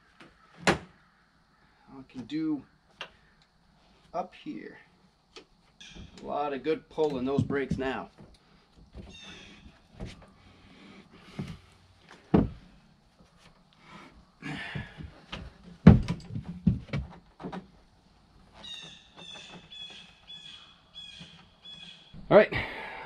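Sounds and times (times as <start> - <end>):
knocks and clunks of tools: 11.4 - 12.6, 14.7 - 17.7.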